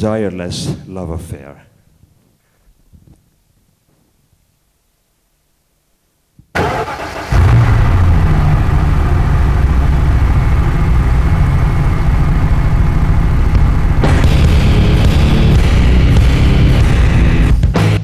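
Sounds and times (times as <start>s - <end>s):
heavy churning low rumble: 7.2s - 17.7s
distorted electronic noise music: 10.3s - 18.0s.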